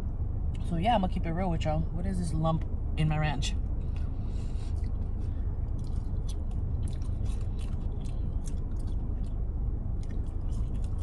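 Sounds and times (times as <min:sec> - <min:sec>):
steady low rumble: 0:00.0 - 0:11.0
chewing with mouth clicks: 0:03.9 - 0:11.0.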